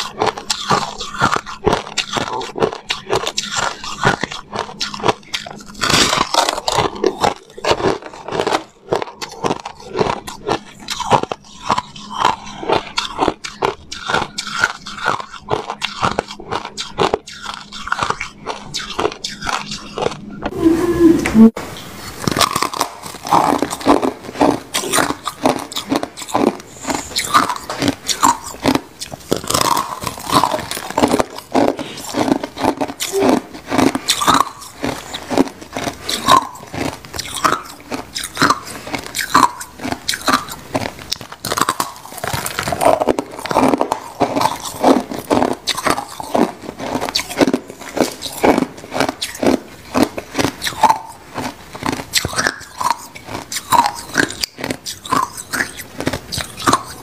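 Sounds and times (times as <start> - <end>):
ice crunching between teeth: 0.0 - 20.5, 22.0 - 57.0.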